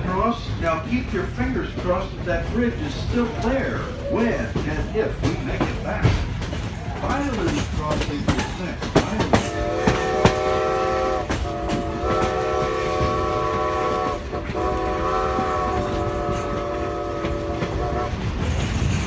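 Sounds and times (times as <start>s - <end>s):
rolling train clickety-clack: 0.0s - 19.0s
steam locomotive chime whistle: 9.4s - 18.2s.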